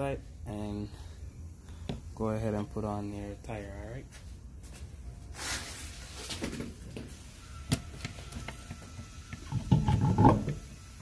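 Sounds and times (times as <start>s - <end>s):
wheel knocking and clunking: 9.4s - 10.6s.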